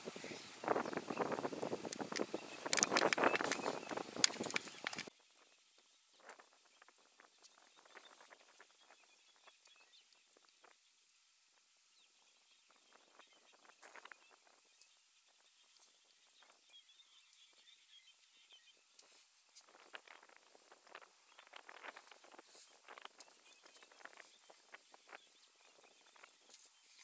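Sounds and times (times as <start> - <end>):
elephant feet rustling in dry grass: 0.0 - 5.2, 19.0 - 27.0.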